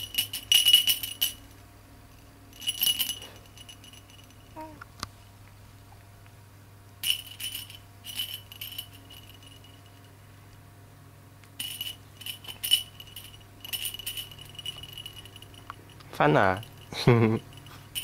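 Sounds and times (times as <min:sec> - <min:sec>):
baby rattle jingling: 0:00.0 - 0:01.5, 0:02.5 - 0:04.8, 0:07.0 - 0:10.1, 0:11.6 - 0:18.0.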